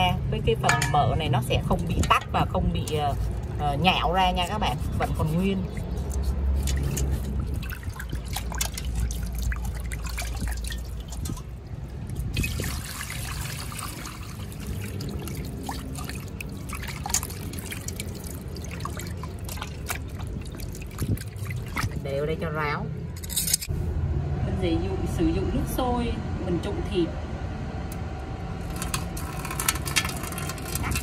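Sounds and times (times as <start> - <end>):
water sloshing in a steel bowl: 0.0 - 22.5, 28.7 - 31.0
water pouring over meat: 12.3 - 22.0.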